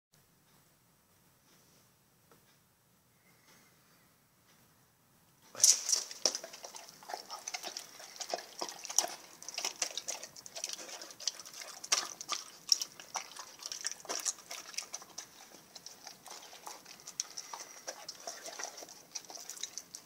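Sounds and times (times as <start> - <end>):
dog chewing wetly: 5.6 - 20.0
dog licking and smacking: 5.6 - 20.0.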